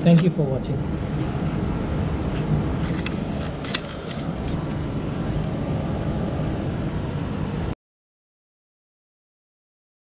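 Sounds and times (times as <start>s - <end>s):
low background rumble: 0.0s - 7.8s.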